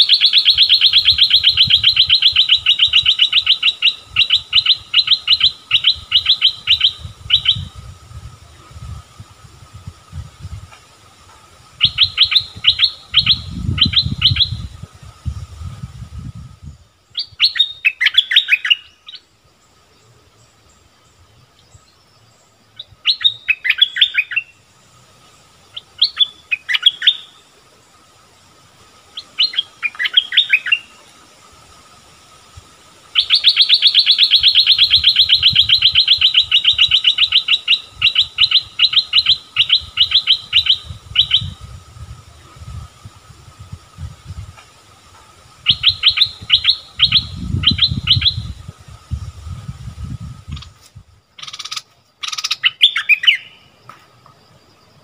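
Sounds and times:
bird chirping: 0.0 - 7.8, 11.7 - 15.5, 16.6 - 28.2, 29.0 - 31.2, 33.1 - 41.8, 45.2 - 48.8, 50.4 - 53.9.

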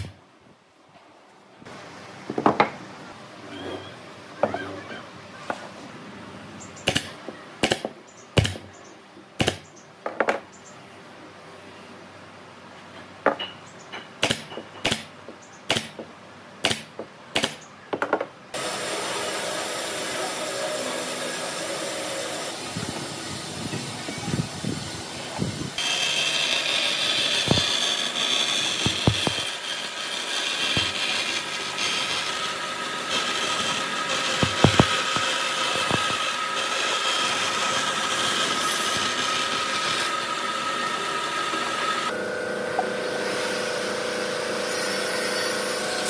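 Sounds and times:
steady machine noise: 18.6 - 46.0
sharp clicks and knocks on wood: 34.4 - 36.2.

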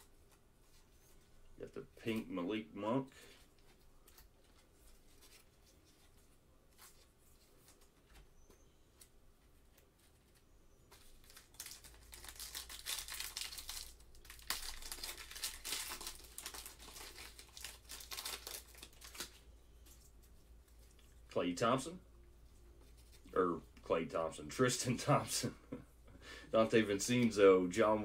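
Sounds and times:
wrapper tearing and crinkling: 11.0 - 19.4.

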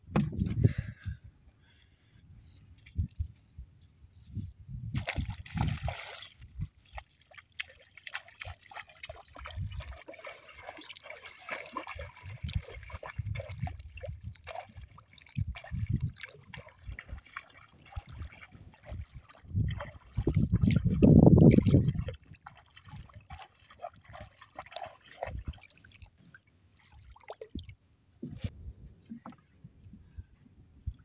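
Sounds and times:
feet wading through shallow water: 5.0 - 27.8.

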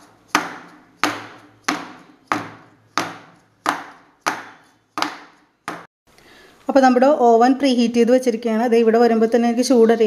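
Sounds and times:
metal cake tin knocking on countertop: 0.4 - 5.9.

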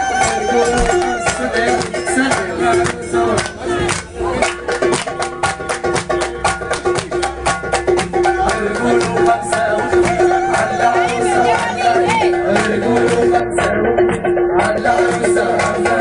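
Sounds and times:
quick steady drumbeat: 4.4 - 13.4.

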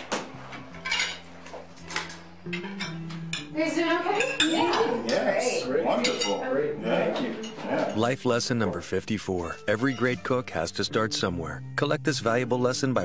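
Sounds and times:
cutlery clinking on plates: 0.1 - 3.5, 4.2 - 5.3, 5.9 - 6.5, 7.1 - 8.0.

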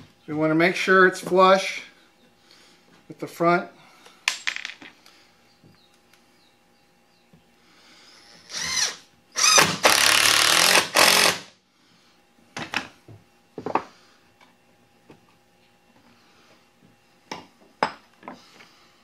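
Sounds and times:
cordless drill motor whine: 8.2 - 11.5.

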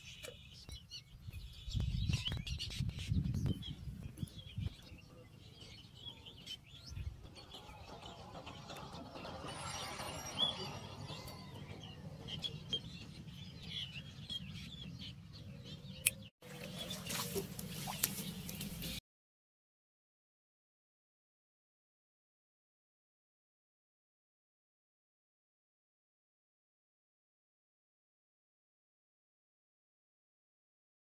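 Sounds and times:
small birds chirping: 0.0 - 9.0, 10.4 - 19.0.

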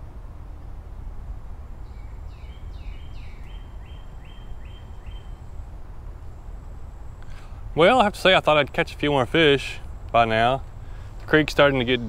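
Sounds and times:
faint high whine: 0.0 - 12.0
steady low rumble: 0.0 - 12.0
songbird whistling: 1.8 - 5.5.

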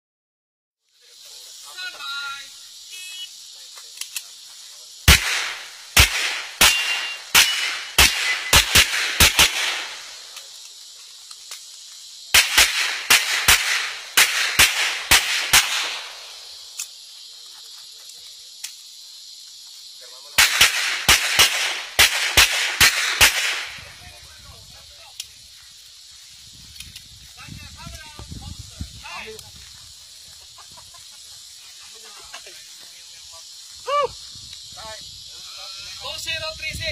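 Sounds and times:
pistol shots with echo: 5.1 - 10.2, 12.3 - 16.4, 20.4 - 23.8.

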